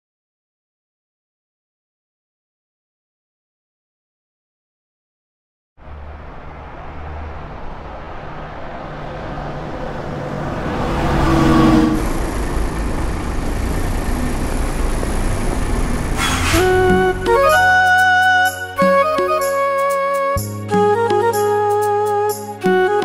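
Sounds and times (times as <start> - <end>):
bus engine running: 5.8 - 23.0
street traffic: 5.8 - 23.0.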